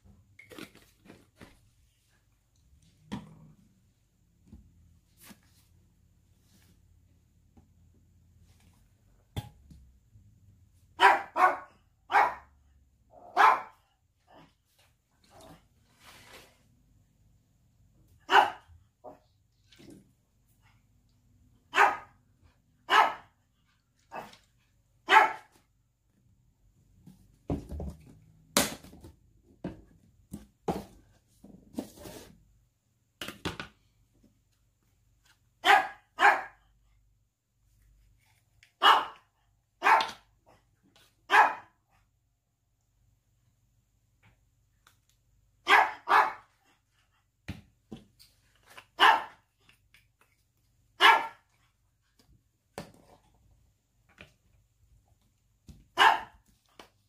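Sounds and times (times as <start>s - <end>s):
dog barking: 11.0s - 12.5s, 13.2s - 13.9s, 18.2s - 19.2s, 21.7s - 22.2s, 22.8s - 23.4s, 25.0s - 25.5s, 35.6s - 36.7s, 38.8s - 40.2s, 41.3s - 41.8s, 45.6s - 46.6s, 49.0s - 49.4s, 51.0s - 51.5s, 56.0s - 56.4s.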